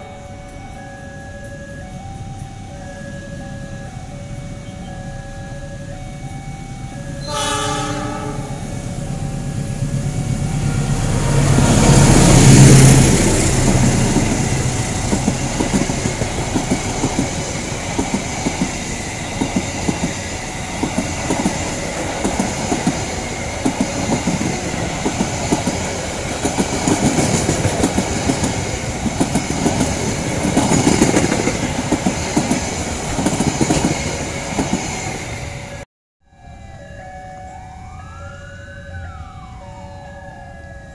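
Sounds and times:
diesel locomotive passing: 0.0 - 40.9
train horn blast: 7.2 - 8.8
wheels clacking over rail joints: 8.9 - 35.8.

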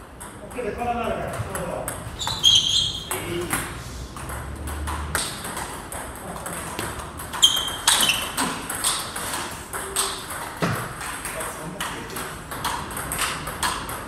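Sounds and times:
table tennis ball clicking: 4.2 - 14.0.

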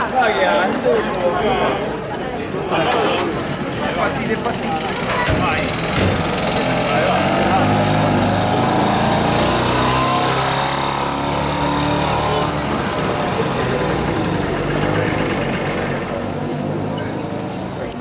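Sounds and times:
small truck engine running: 2.8 - 18.0.

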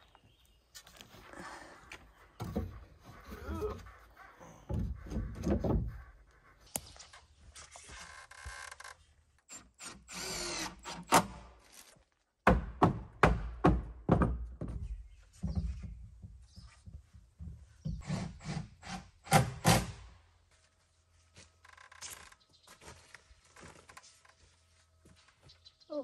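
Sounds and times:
knocks and thumps on wood: 4.7 - 6.0, 12.4 - 18.0
cordless drill driving screws: 9.5 - 11.3.

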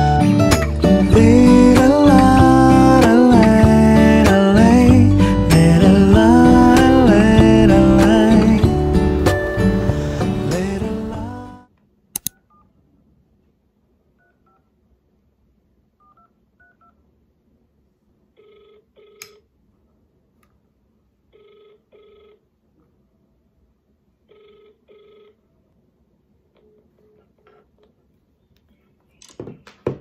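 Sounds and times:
sharp clicks: 12.2 - 12.4
phone ringback tone: 18.4 - 19.3, 21.4 - 22.4, 24.3 - 25.4.

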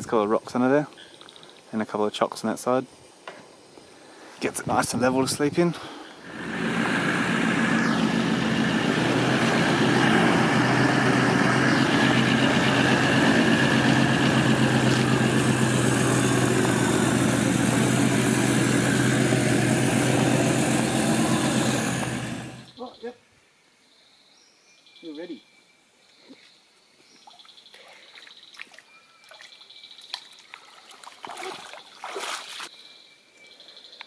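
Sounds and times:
diesel engine running: 6.2 - 22.8.

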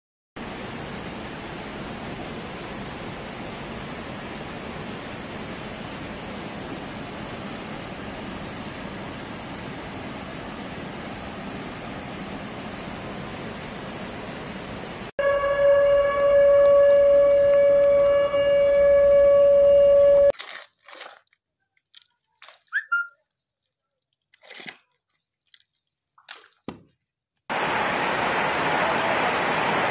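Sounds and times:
floodwater rushing: 27.5 - 29.9.

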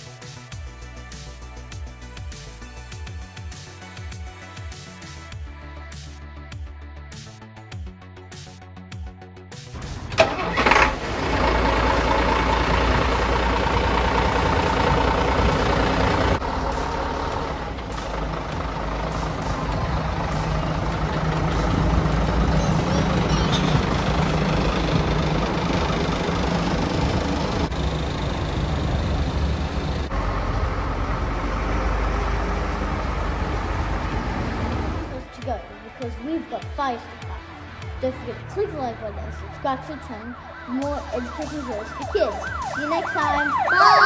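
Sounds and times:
diesel engine running: 9.7 - 44.0.

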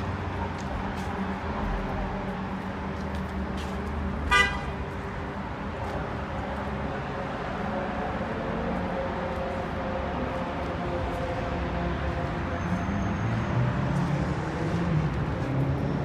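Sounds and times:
city traffic noise: 0.0 - 16.0
car horn toot: 4.3 - 4.8.

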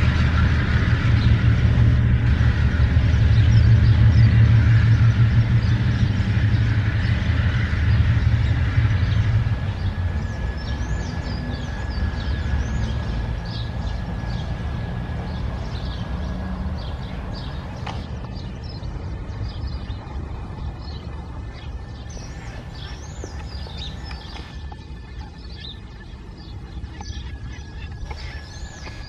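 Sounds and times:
locomotive engine drone: 0.0 - 29.0
thin steady squeal: 19.8 - 29.0.

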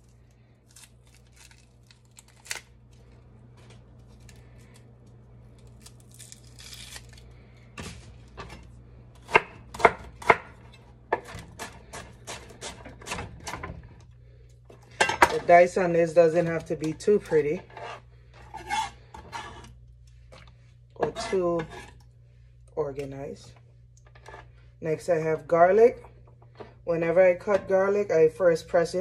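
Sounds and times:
knife chopping on wooden board: 9.2 - 13.6.

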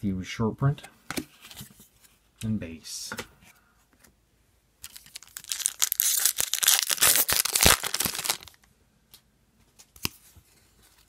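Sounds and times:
foil wrapper tearing and crinkling: 4.8 - 8.7.

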